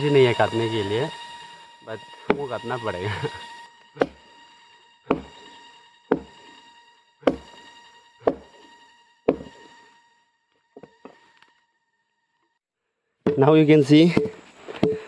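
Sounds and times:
axe chopping tree trunk: 4.0s - 4.2s, 5.1s - 5.4s, 6.1s - 6.4s, 7.3s - 7.6s, 8.2s - 8.5s, 9.3s - 9.5s.

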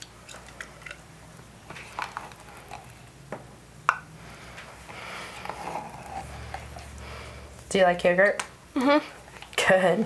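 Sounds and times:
spoon scraping and squishing yogurt: 1.6s - 3.1s, 4.9s - 7.0s.

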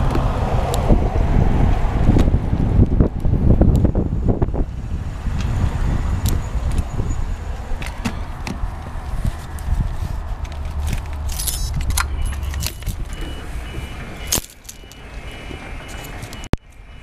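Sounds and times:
cement mixer truck rumbling: 7.3s - 17.0s
rattling: 9.4s - 16.4s
faint high beep: 12.1s - 17.0s.

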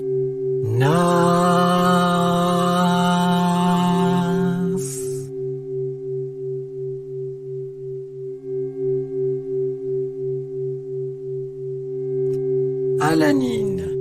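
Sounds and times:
faint higher tones: 0.0s - 14.0s
low meditation drone tones: 0.0s - 14.0s.

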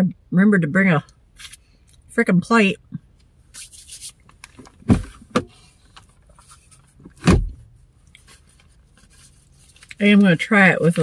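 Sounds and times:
dull thumps inside car: 4.6s - 5.6s, 7.0s - 7.7s.

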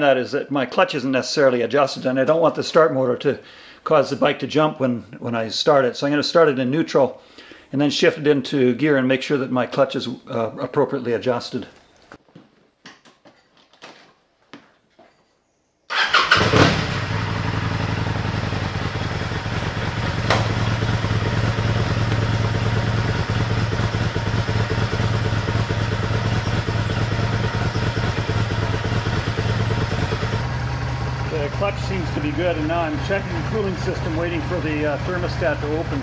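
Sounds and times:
motorcycle engine starting and idling: 15.9s - 36.0s
sharp knock: 20.3s - 20.6s.

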